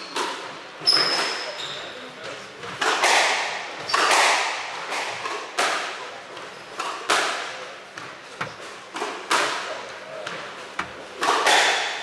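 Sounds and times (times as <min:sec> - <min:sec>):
squash ball hits with echo: 0:02.6 - 0:06.1, 0:06.8 - 0:12.0.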